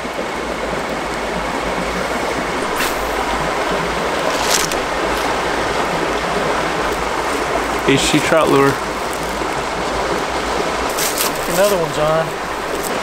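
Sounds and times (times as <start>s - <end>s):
creek water running: 0.0s - 13.0s
brief high swishes: 2.7s - 3.3s.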